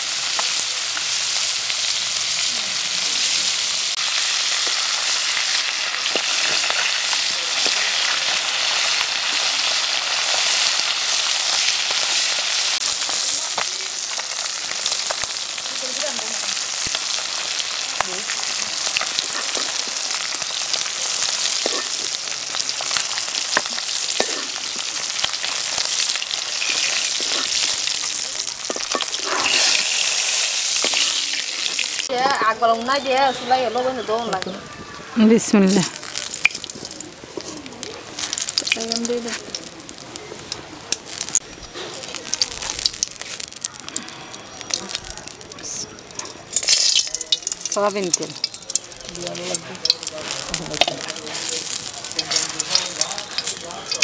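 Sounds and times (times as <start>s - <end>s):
fish sizzling in hot oil: 0.0s - 34.6s, 35.3s - 54.0s
metal spatula clicks and scrapes: 50.8s - 54.0s.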